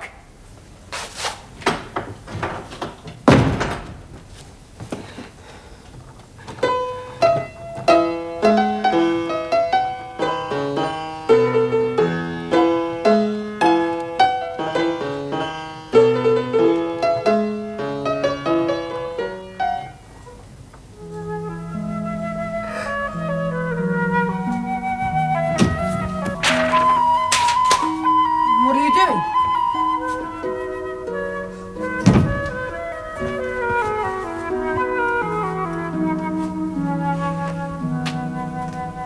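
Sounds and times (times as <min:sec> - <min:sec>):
heavy wooden door slamming: 0:01.6 - 0:04.3, 0:24.2 - 0:28.5, 0:31.2 - 0:35.0
knocking: 0:01.6 - 0:04.3, 0:24.2 - 0:28.6, 0:31.8 - 0:36.2
solo piano: 0:06.3 - 0:39.0.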